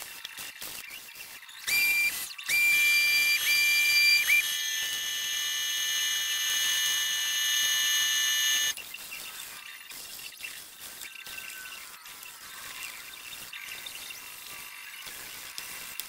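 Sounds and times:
pneumatic sander whining: 0:01.7 - 0:08.8.

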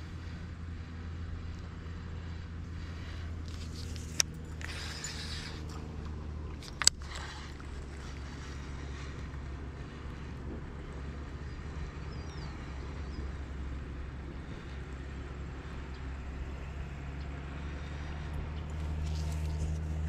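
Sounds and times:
steady low hum: 0:00.0 - 0:20.0
fishing reel click: 0:03.5 - 0:05.8.

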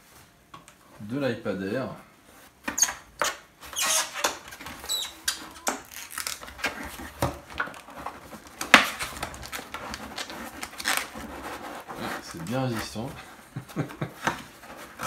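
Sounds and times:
cardboard box rustling and scraping: 0:03.6 - 0:15.0.

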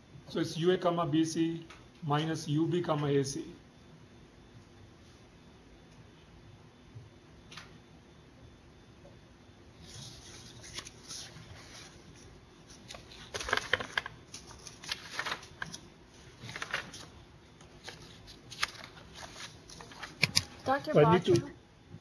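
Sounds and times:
paper rustling: 0:09.8 - 0:21.5.

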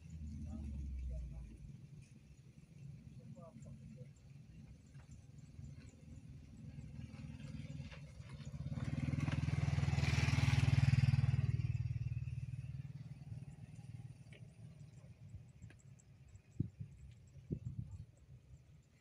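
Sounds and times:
low steady engine hum: 0:00.0 - 0:19.0
vehicle driving past: 0:06.8 - 0:14.3.

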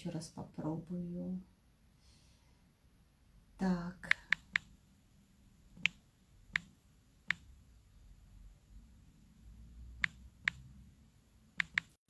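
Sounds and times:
fingers tapping touchscreen: 0:04.1 - 0:04.7, 0:05.8 - 0:06.7, 0:07.3 - 0:07.5, 0:10.0 - 0:10.7, 0:11.6 - 0:12.0.

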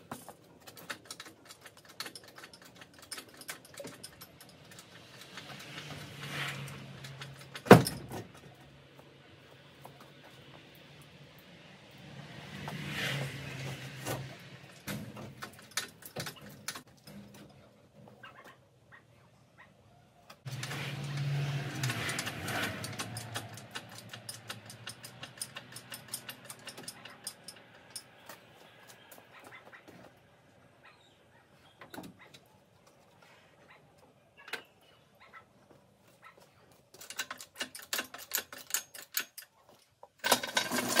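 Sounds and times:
metallic clicks and knocks: 0:00.0 - 0:08.6, 0:14.7 - 0:17.7, 0:20.3 - 0:28.5, 0:36.7 - 0:41.0.

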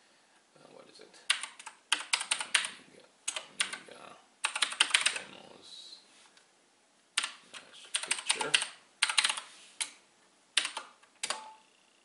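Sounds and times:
keyboard typing clicks: 0:01.3 - 0:02.7, 0:04.4 - 0:05.2, 0:07.2 - 0:10.0, 0:10.6 - 0:11.6.

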